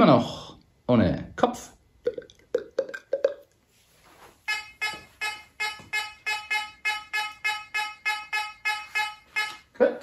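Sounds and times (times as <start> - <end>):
metal detector beeps: 4.5 - 9.7.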